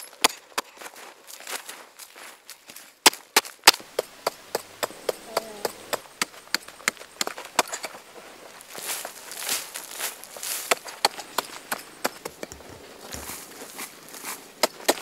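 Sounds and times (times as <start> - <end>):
digging stick knocking hard earth: 3.0 - 8.1, 10.3 - 15.0
soil scraping and crumbling: 3.6 - 15.0.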